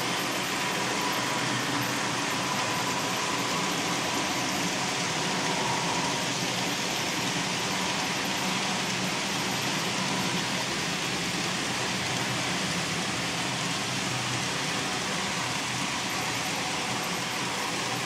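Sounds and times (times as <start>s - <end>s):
model trains whirring on rails: 0.0s - 18.0s.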